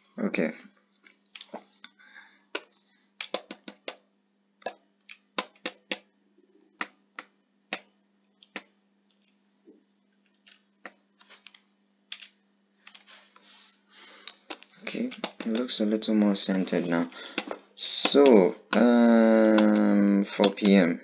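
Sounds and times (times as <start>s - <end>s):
faint steady hum: 0.0s - 21.0s
mouse and keyboard clicking: 2.6s - 4.0s, 14.2s - 15.8s, 19.5s - 20.8s.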